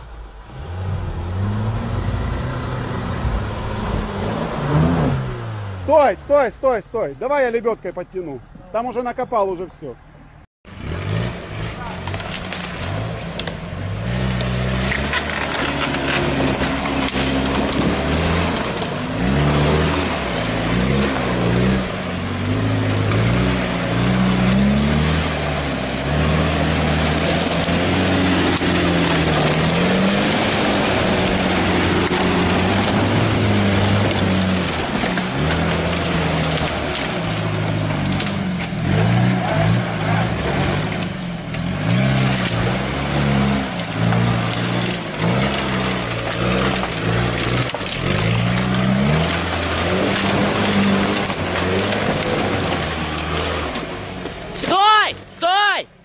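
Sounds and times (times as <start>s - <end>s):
off-road engine revving: 0.0s - 9.2s, 10.6s - 55.8s
vehicle churning through mud: 0.0s - 9.2s, 10.7s - 55.8s.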